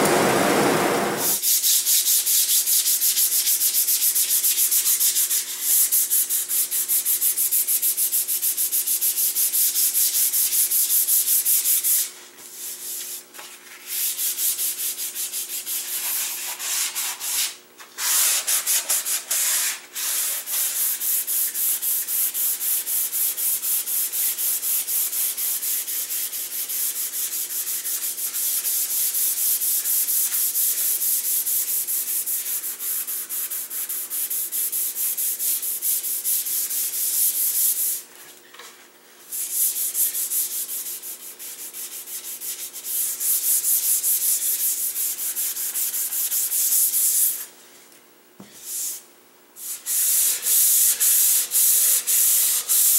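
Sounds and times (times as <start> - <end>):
sandpaper rubbing wood: 1.2 - 38.1, 39.3 - 47.5, 48.6 - 49.0, 49.6 - 52.9.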